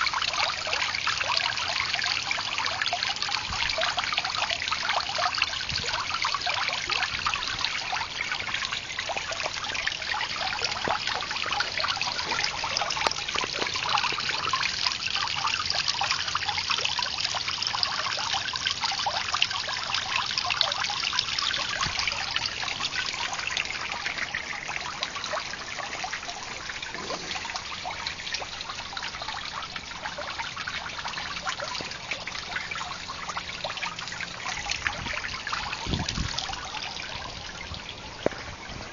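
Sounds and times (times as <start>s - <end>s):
water trickling: 0.0s - 38.9s.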